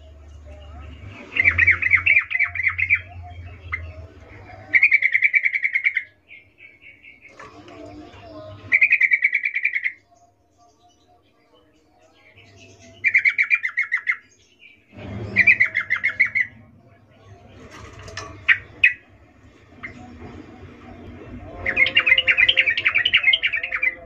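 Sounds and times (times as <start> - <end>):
bird chattering calls: 8.7 - 10.0.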